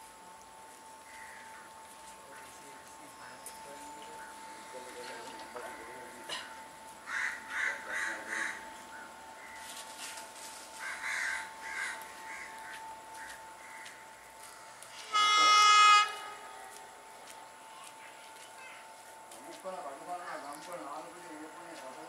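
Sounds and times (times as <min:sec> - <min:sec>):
train horn blast: 0:14.9 - 0:17.0.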